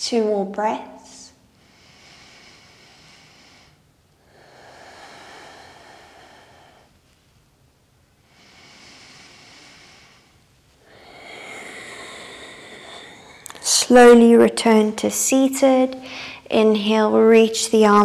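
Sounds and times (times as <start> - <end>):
woman breathing through nose: 1.5 - 7.3, 8.2 - 13.6, 16.0 - 16.5.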